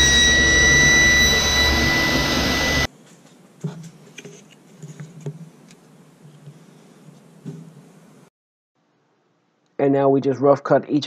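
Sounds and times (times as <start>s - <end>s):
table saw motor whine: 0.0s - 2.9s.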